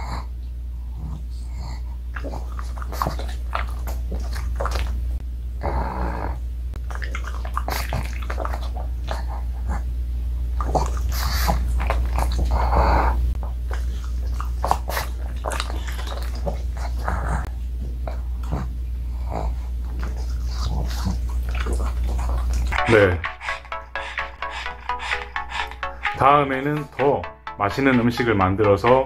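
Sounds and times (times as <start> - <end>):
dog snorting breaths: 0.0 - 4.8, 10.6 - 26.0
steady low hum: 0.0 - 27.9
dog chewing: 1.3 - 5.1, 6.7 - 26.0.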